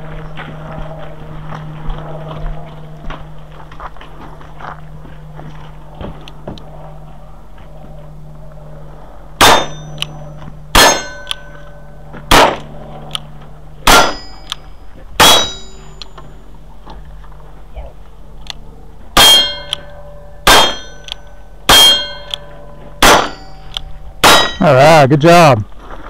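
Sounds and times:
steel target plate ringing: 9.4s - 12.6s, 13.8s - 16.5s, 19.1s - 25.1s.

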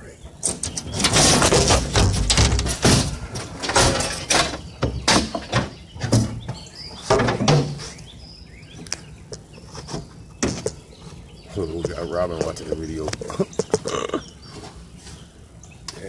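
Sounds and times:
knocks and clatters: 0.3s - 7.8s
faint bird chirps: 7.7s - 16.0s.

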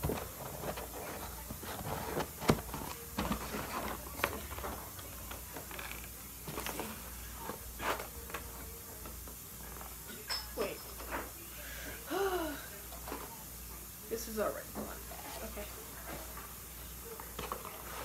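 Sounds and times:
cardboard boxes rustling: 0.0s - 5.4s.

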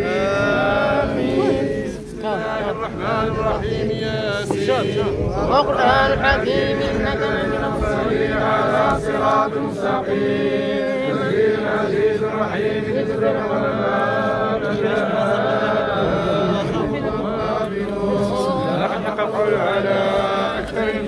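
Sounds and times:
men chanting in unison: 0.0s - 21.0s.

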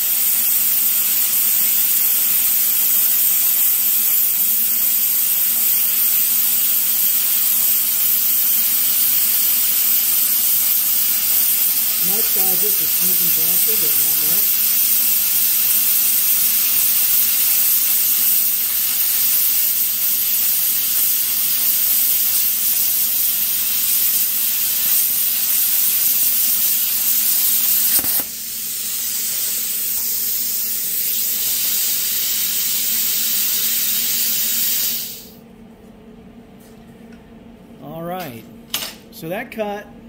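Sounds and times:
plasma cutter hissing: 0.0s - 35.4s
plasma cutter click: 5.7s - 28.4s.

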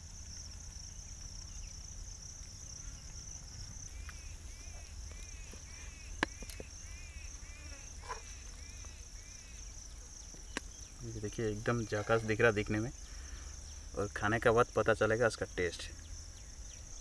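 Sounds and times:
bird chirping: 2.8s - 14.4s, 15.6s - 17.0s.

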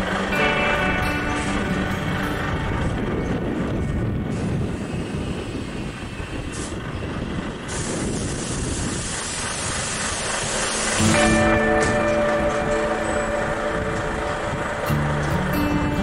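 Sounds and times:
music: 0.0s - 4.7s, 11.0s - 16.0s
vehicle rumble with hiss: 0.0s - 16.0s.

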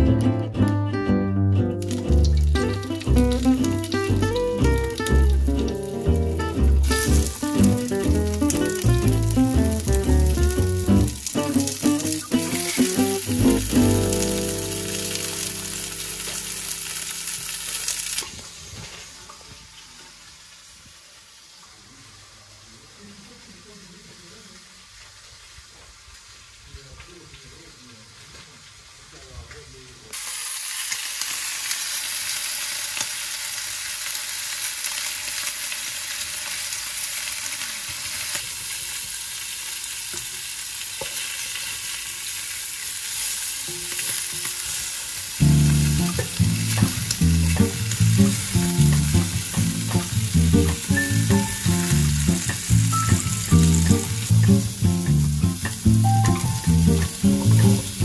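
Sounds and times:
meat sizzling in hot oil: 1.8s - 21.8s, 30.1s - 58.0s
background music with beat: 45.4s - 58.0s.

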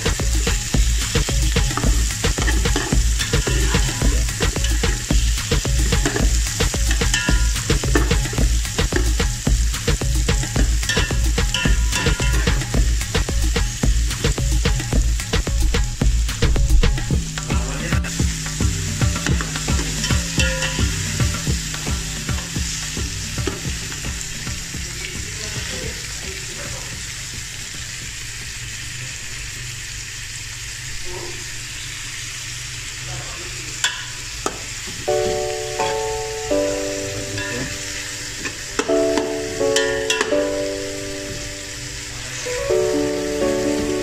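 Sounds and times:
food sizzling in a pot: 0.0s - 44.0s
metal spoon knocking on pot: 5.9s - 9.3s, 10.6s - 12.7s, 19.2s - 22.4s, 39.8s - 40.4s.

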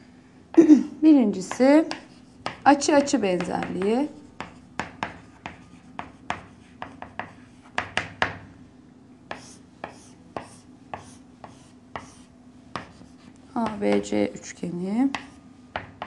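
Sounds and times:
faint steady hum: 0.0s - 16.0s
chalk tapping and scratching: 1.4s - 8.4s, 9.3s - 14.1s
chalk scraping on chalkboard: 1.5s - 7.8s, 9.3s - 14.0s.

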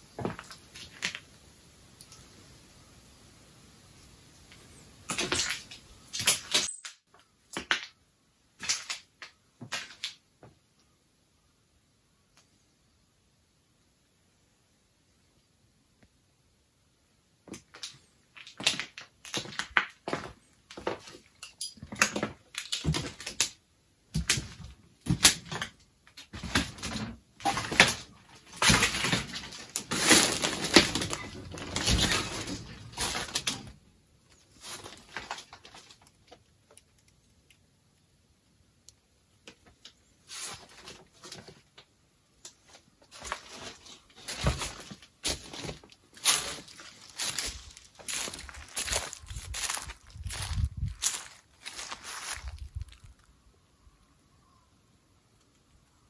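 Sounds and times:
footsteps crunching on rough ground: 43.1s - 53.3s.

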